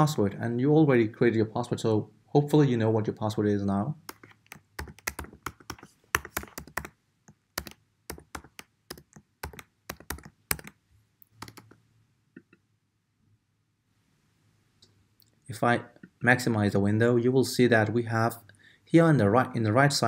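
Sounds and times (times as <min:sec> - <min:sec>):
computer keyboard typing: 0:04.1 - 0:07.0, 0:07.6 - 0:10.8, 0:11.4 - 0:11.8.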